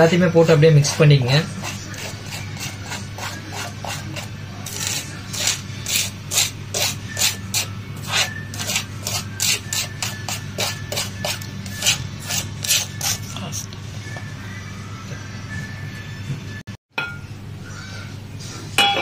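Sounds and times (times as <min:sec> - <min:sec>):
plastic spoon scraping a plate: 0:00.8 - 0:13.7.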